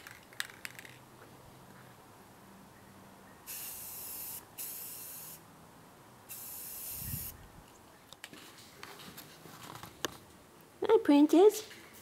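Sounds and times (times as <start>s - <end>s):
spray paint can hissing: 3.5s - 5.4s, 6.3s - 7.4s.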